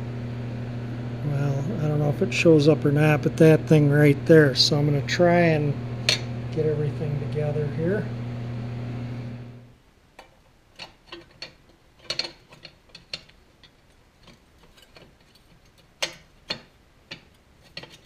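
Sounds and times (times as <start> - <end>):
steady low hum: 0.0 - 18.0
metal parts clicking and knocking: 10.2 - 18.0.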